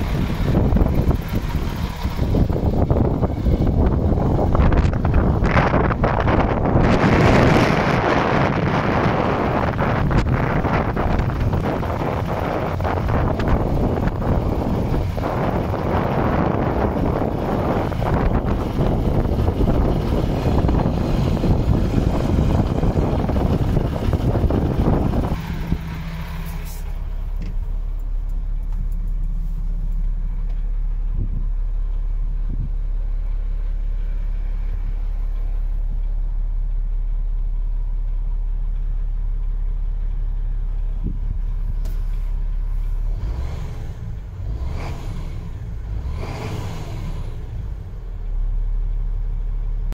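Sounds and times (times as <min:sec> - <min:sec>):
wind buffeting microphone: 0:00.0 - 0:27.6, 0:31.0 - 0:33.1, 0:40.9 - 0:41.8
truck diesel engine idling: 0:00.0 - 0:44.5, 0:47.1 - 0:49.9.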